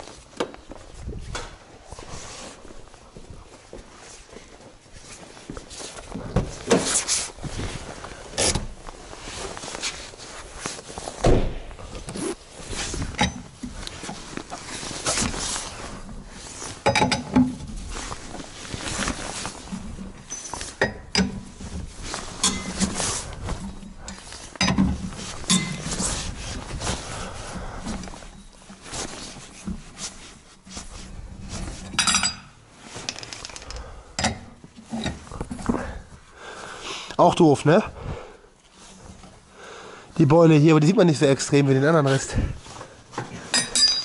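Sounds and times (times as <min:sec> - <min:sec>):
hand tools clanking on metal: 0:22.4 - 0:23.0, 0:25.5 - 0:25.9, 0:43.4 - 0:44.0.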